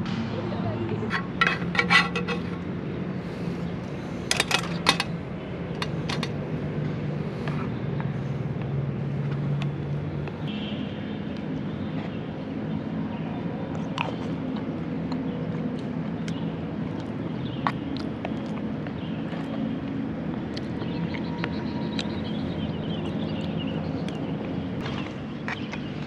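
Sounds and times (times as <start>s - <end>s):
steady low hum: 0.0s - 26.0s
metal spatula scraping pan: 1.1s - 2.6s.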